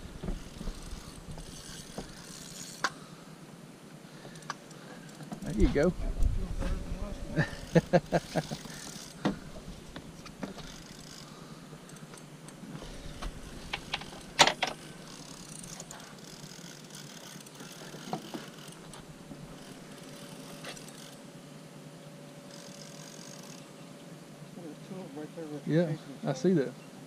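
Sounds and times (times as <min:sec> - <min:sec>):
fishing reel cranking: 0:00.3 - 0:03.0, 0:07.4 - 0:09.2, 0:10.5 - 0:12.2, 0:13.0 - 0:18.9, 0:19.5 - 0:21.2, 0:22.5 - 0:23.7.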